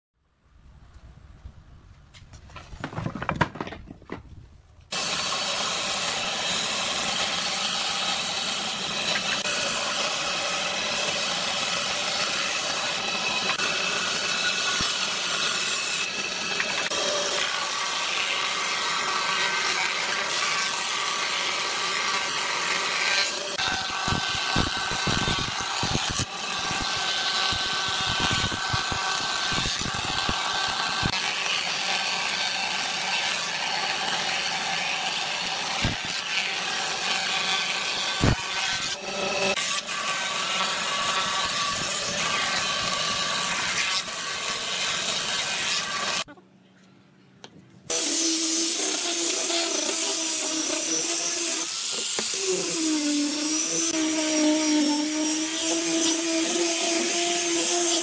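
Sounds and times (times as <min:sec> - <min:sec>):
wooden boards knocking: 0:02.6 - 0:04.3
thickness planer running: 0:04.9 - 0:44.0
table saw ripping boards: 0:04.9 - 0:46.3, 0:47.9 - 0:58.0.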